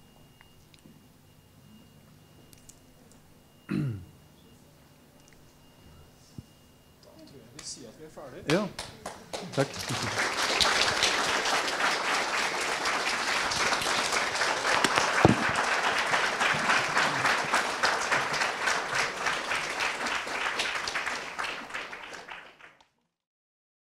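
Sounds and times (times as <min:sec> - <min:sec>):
audience clapping: 0:08.5 - 0:23.0.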